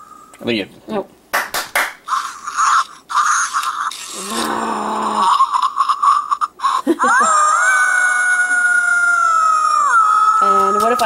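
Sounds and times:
toy dog yapping: 2.1 - 4.1
toy dog howling: 5.2 - 11.0.

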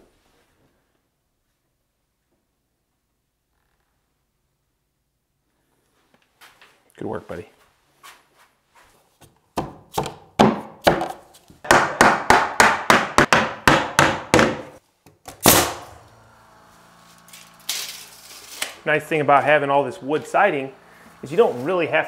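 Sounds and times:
sharp knocks on wood: 11.7 - 14.7
air compressor motor humming: 15.5 - 22.0.

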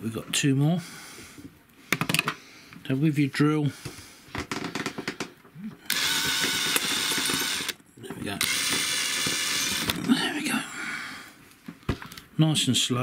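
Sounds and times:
drill bit clicking: 5.9 - 7.8, 8.4 - 10.0
drill boring through metal: 5.9 - 7.8, 8.4 - 10.0.

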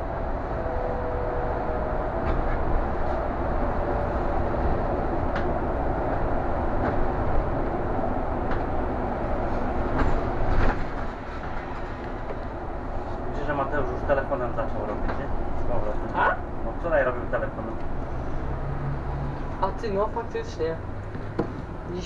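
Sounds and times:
bus engine rumble: 0.0 - 22.0.

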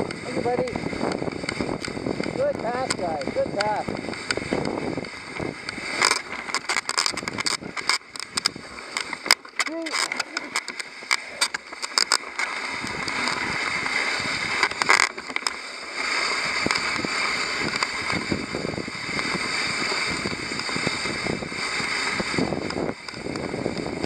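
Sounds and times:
sharp clicks: 0.0 - 15.6
sled runners hissing over snow: 0.0 - 24.0.

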